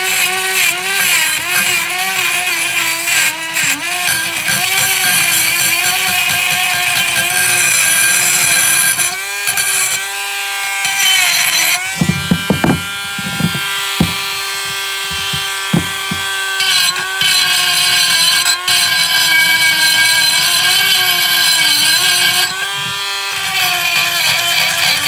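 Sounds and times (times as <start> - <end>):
rotary tool grinding metal: 0.0 - 25.0
sharp knocks: 11.8 - 17.0.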